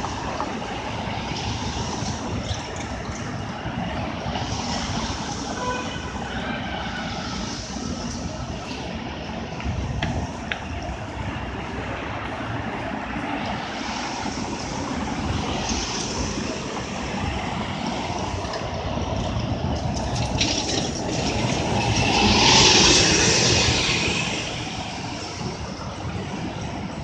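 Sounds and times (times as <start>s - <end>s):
traffic rumble: 0.0s - 27.0s
car passing close: 19.3s - 26.6s.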